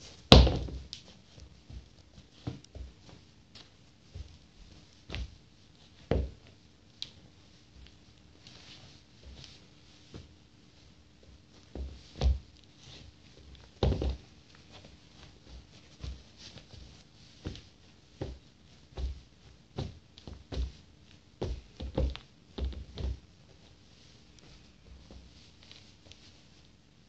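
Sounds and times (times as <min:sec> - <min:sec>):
foot thumping in sneaker: 0:00.2 - 0:07.2, 0:11.2 - 0:23.6.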